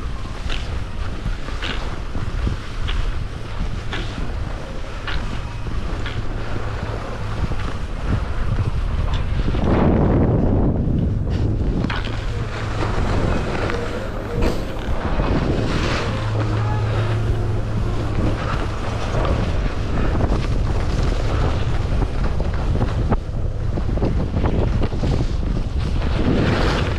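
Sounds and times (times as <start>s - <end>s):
wind rushing over microphone: 0.0s - 26.9s
skis scraping on snow: 11.3s - 26.9s.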